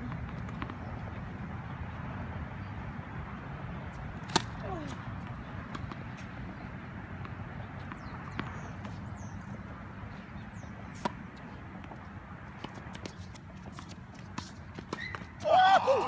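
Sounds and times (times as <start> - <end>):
tennis ball racket hits: 4.2 - 6.3
birds chirping: 5.2 - 13.8.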